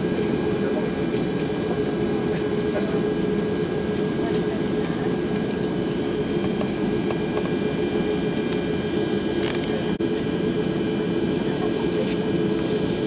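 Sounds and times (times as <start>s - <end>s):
constant low hum: 0.0s - 13.0s
jet engines droning: 0.0s - 13.0s.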